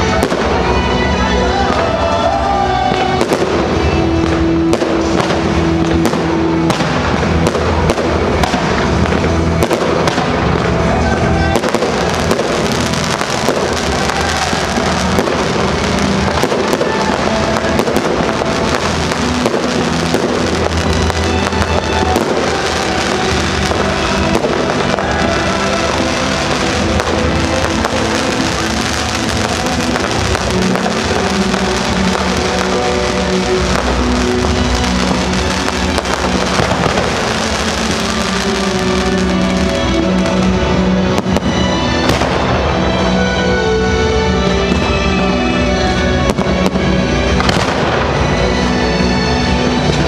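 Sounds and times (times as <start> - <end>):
loud music: 0.0 - 50.0
fireworks bangs: 1.5 - 43.2, 46.2 - 48.7.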